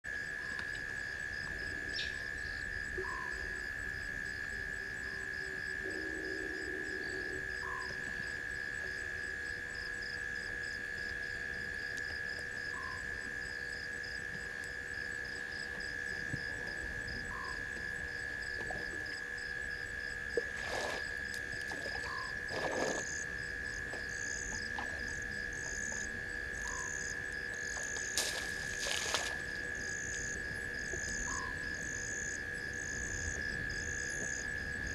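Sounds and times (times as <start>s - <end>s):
frogs and insects trilling: 0.1s - 34.9s.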